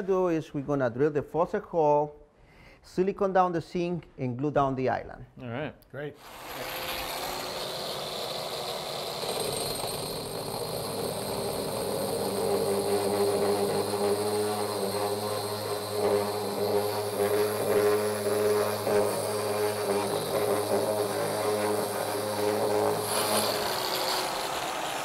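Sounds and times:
angle grinder boring stone: 6.2 - 25.0
vacuum running: 6.2 - 25.0.

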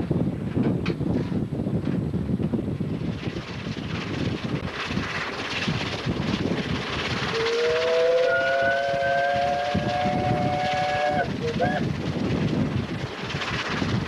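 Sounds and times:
steam locomotive rattling: 0.0 - 14.0
steam whistle chord: 7.3 - 11.3.

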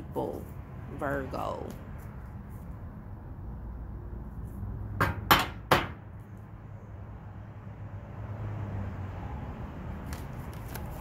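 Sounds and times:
cards being shuffled: 10.0 - 11.0.

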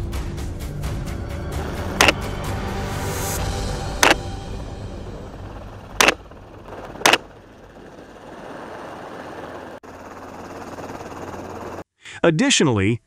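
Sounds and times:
helicopter engine and rotor: 1.1 - 11.8.

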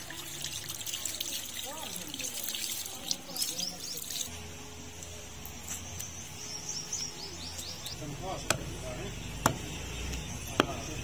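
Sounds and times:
cleaver chopping meat and bone: 8.4 - 11.0.

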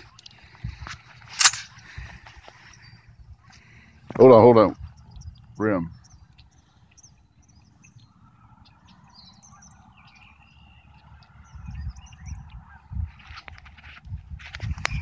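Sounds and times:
small birds chirping: 0.0 - 15.0
steady low rumble: 0.0 - 15.0.

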